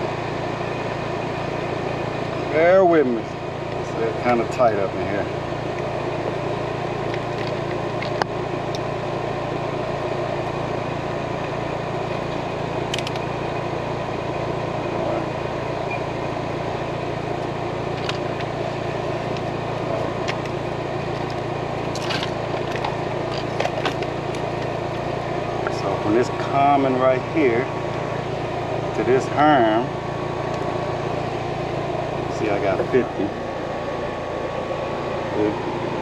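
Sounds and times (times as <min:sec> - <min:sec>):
air-conditioning hum: 0:00.0 - 0:36.0.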